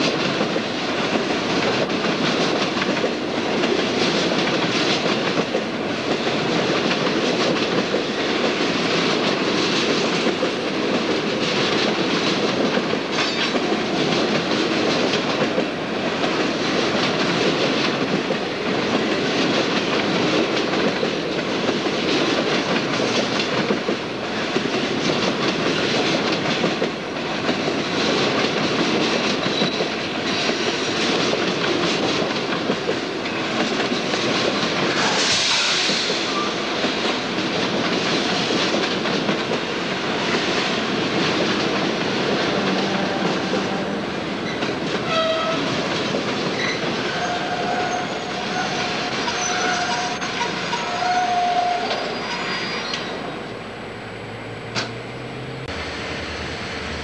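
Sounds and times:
short hiss burst: 35.0s - 36.4s.

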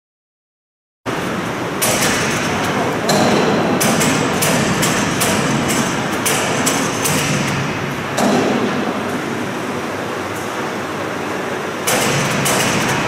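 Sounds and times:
sharp knocks: 1.8s - 8.8s, 11.9s - 13.0s
machinery din: 11.8s - 13.0s.

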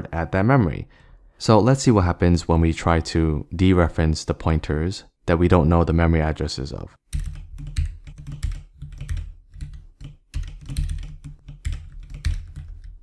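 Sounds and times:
typing on a keyboard: 7.1s - 13.0s.

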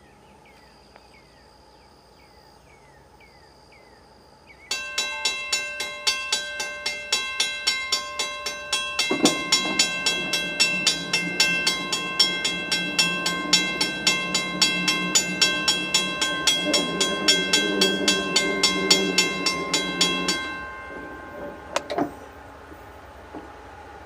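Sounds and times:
low steady tone: 4.2s - 23.4s
railroad crossing bell ringing: 4.7s - 23.3s.

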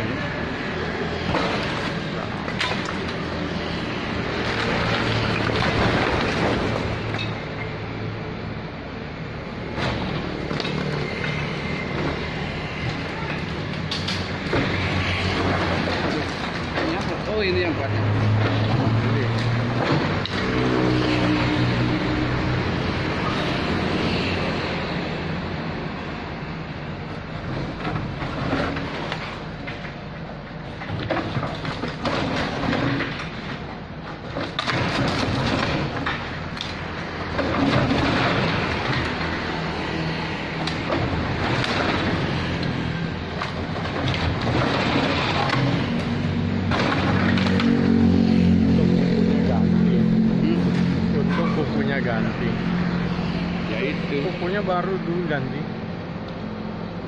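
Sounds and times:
masonry and timber crunching: 0.0s - 7.8s, 9.6s - 24.0s, 27.0s - 56.3s
excavator diesel engine: 0.0s - 57.0s
knocks and clatter: 1.1s - 7.8s, 9.6s - 23.4s, 27.3s - 52.3s.

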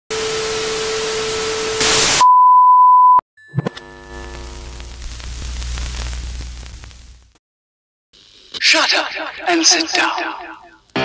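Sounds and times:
high beep: 2.2s - 4.2s
television static hiss: 4.2s - 7.3s.

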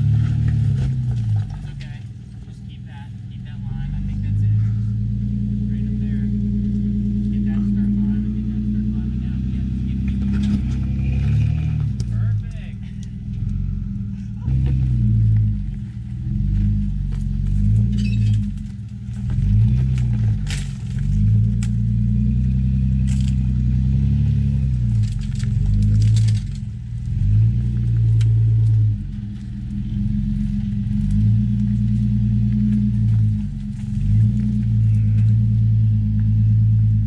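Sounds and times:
engine revving: 0.0s - 37.0s.

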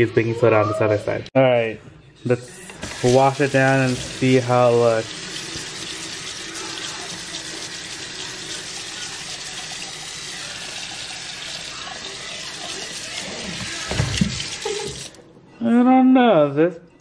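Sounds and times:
tap running into sink: 13.5s - 15.2s.

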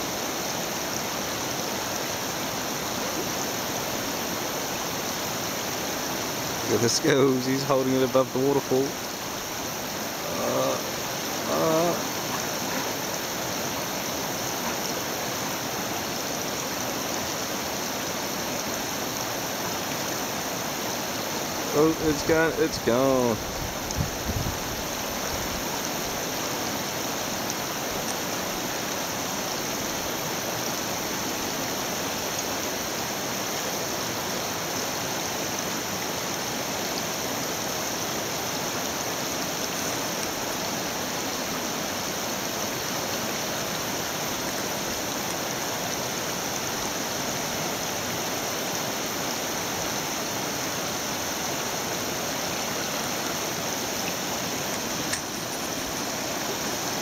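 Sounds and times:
river rushing over boulders: 0.0s - 57.0s.

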